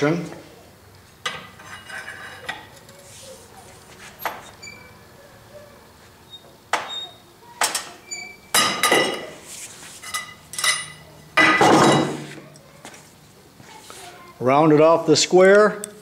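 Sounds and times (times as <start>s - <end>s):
wrench clanking against metal: 10.1s - 12.2s.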